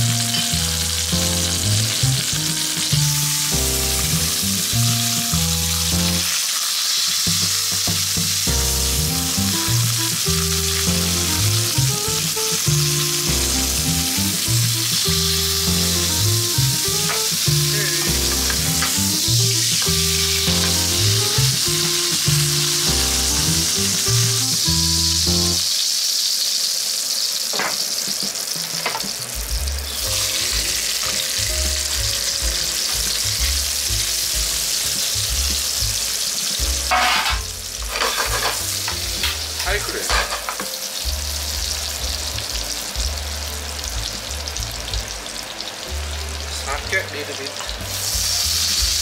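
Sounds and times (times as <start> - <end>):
food sizzling in hot oil: 0.0 - 49.0
metal tongs clinking on pan: 36.9 - 40.8.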